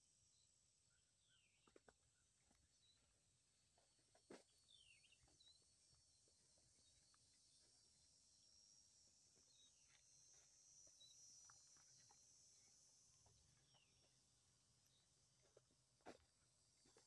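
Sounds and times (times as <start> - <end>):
high-pitched insect chorus: 4.7 - 17.0.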